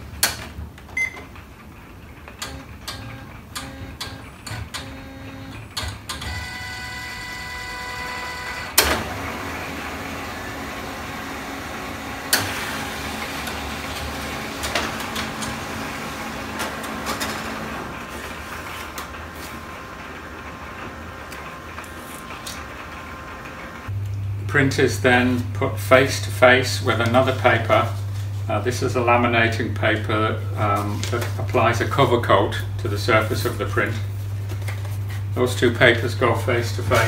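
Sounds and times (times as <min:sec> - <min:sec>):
printer mechanism running: 0:00.0 - 0:23.9, 0:35.6 - 0:37.0
printer whirring tone: 0:02.4 - 0:23.9
printer clunk: 0:08.2 - 0:10.7, 0:11.3 - 0:20.2.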